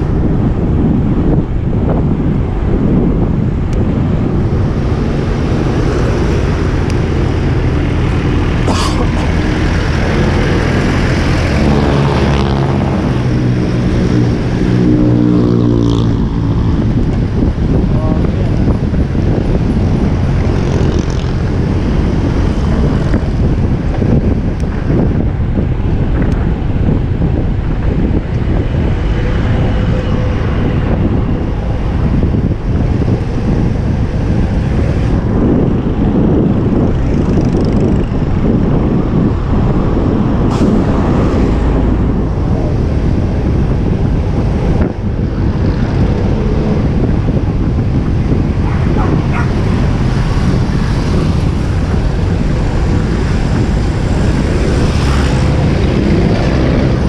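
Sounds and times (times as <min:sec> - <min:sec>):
motor vehicle engine: 0:00.0 - 0:57.0
road traffic: 0:00.0 - 0:57.0
wind rushing over microphone: 0:00.0 - 0:57.0.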